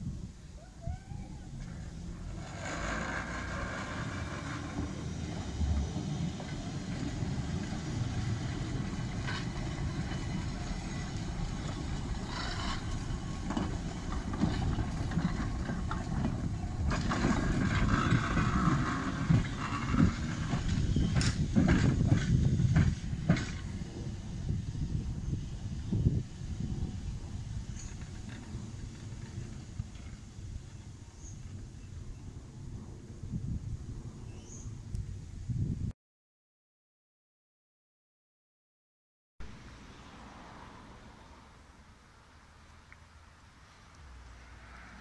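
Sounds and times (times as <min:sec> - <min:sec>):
tram wheels on rails: 0:01.0 - 0:33.0.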